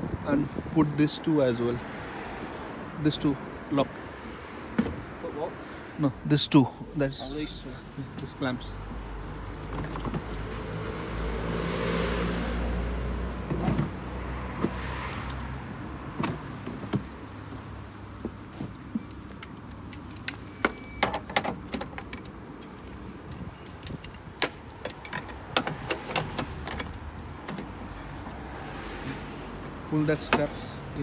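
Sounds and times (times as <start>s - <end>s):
buckles and straps rattling: 18.2s - 28.4s.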